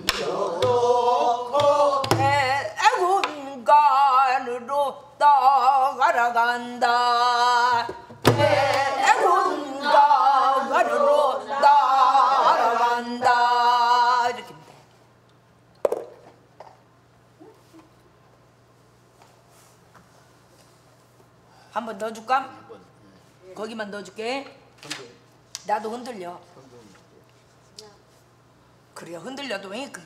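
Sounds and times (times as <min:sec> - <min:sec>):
woman singing with wavering vibrato: 0:00.0 - 0:14.6.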